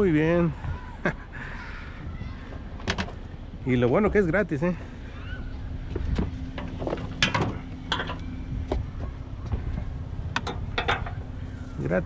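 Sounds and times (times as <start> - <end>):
steady low hum: 0.0 - 12.0
lawn mower knocking and clinking: 6.6 - 8.2, 10.4 - 11.2.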